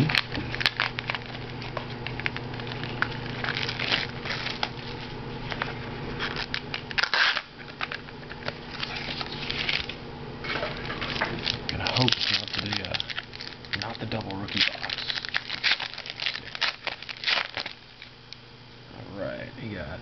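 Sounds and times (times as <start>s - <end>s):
foil wrappers crinkling: 0.0s - 18.4s
loud crackle: 11.1s - 18.1s.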